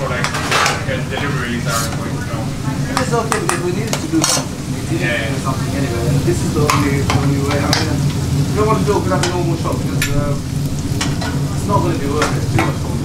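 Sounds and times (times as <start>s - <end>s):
curry sizzling in pans: 0.0s - 13.0s
steady low hum: 0.0s - 13.0s
metal spoon clinking on pans: 3.0s - 4.5s.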